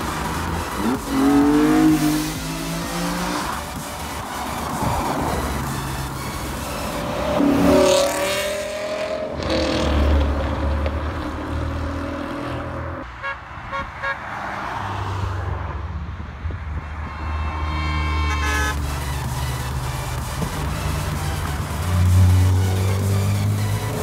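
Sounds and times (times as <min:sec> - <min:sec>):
cars driving past: 0:00.0 - 0:24.0
car engine revving past: 0:07.4 - 0:13.0
car horn toots: 0:13.1 - 0:14.4, 0:16.8 - 0:19.0.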